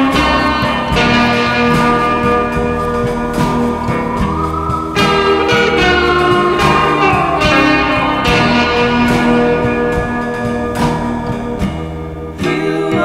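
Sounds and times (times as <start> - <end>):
instrumental music with held notes: 0.0 - 13.0
sharp struck ringing notes: 0.5 - 9.3.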